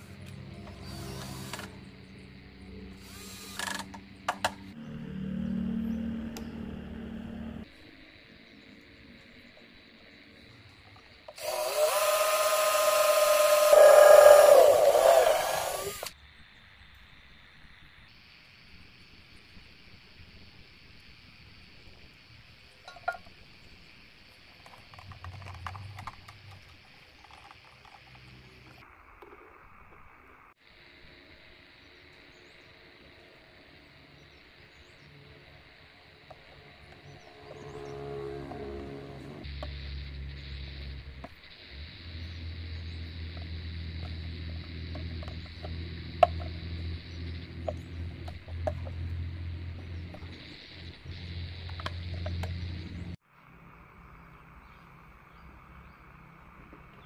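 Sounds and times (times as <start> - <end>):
steady low hum: 0.0 - 11.5, 30.9 - 56.4.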